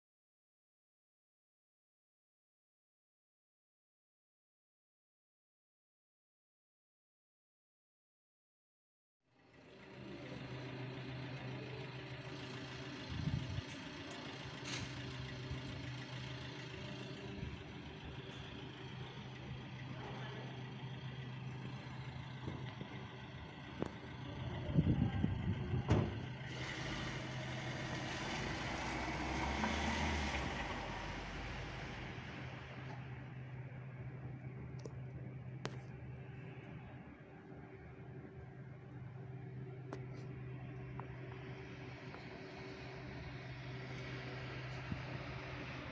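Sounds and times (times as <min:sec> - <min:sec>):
low engine hum: 0:09.4 - 0:45.9
vehicle passing on wet street: 0:09.8 - 0:19.8, 0:26.1 - 0:34.3, 0:41.2 - 0:45.9
low rumble with knocks: 0:24.7 - 0:27.0.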